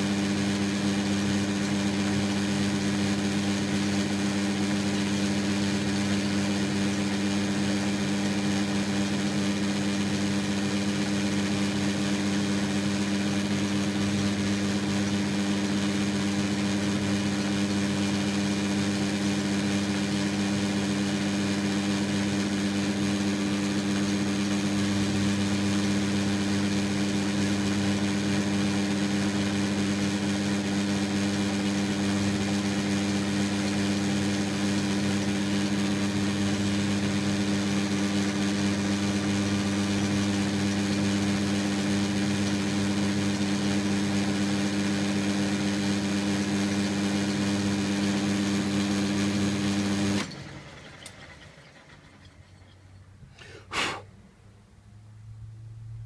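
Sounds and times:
metal lathe humming: 0.0 - 53.5.

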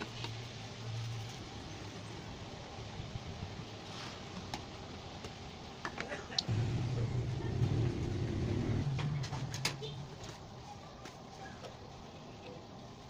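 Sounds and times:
electric blower fan humming: 6.4 - 10.6.

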